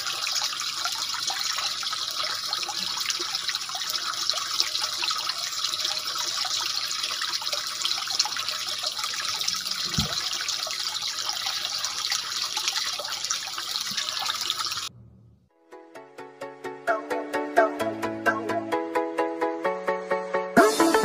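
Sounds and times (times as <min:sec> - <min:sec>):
water trickling: 0:00.0 - 0:14.9
low thud: 0:09.9 - 0:10.2.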